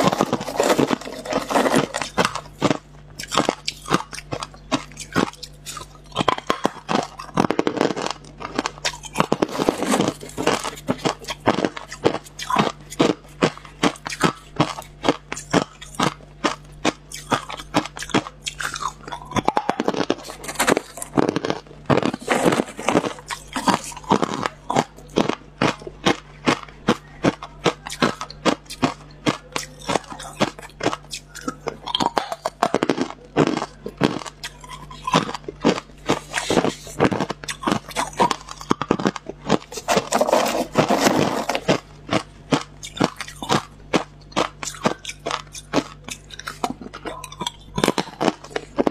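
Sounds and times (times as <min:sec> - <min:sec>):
ice crunching between teeth: 0:00.0 - 0:48.9.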